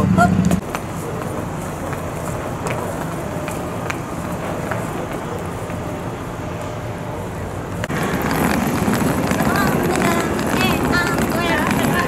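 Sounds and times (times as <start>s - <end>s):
suitcase wheels rumbling on paving: 7.1s - 12.0s.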